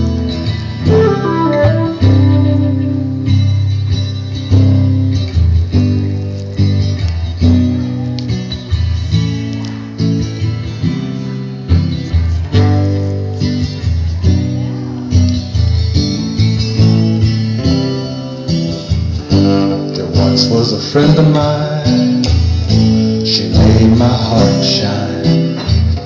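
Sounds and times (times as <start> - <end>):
acoustic guitar: 0.0 - 26.0
flute line: 0.8 - 3.5
bass line: 0.8 - 4.0.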